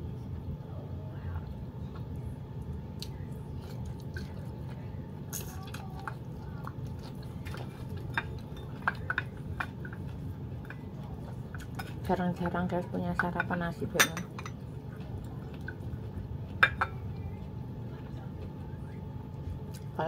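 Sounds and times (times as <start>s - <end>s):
low background hum: 0.0s - 20.0s
person chewing: 3.0s - 11.8s.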